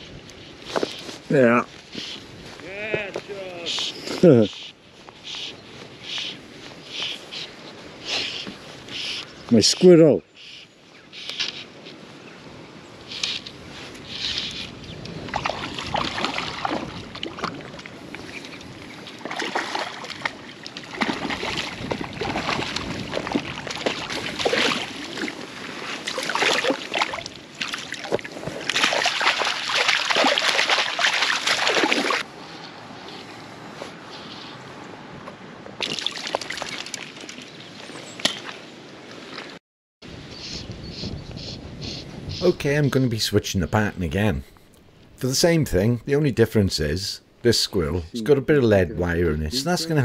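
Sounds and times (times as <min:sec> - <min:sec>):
water splashing and sloshing: 0:13.0 - 0:32.3, 0:34.9 - 0:39.6.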